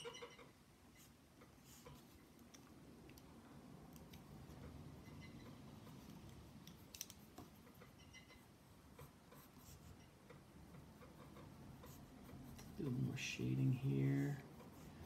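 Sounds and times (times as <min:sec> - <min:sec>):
pencils clicking in hand: 0:02.4 - 0:04.3, 0:06.0 - 0:07.5
pencil strokes on paper: 0:08.6 - 0:10.0, 0:10.7 - 0:15.0.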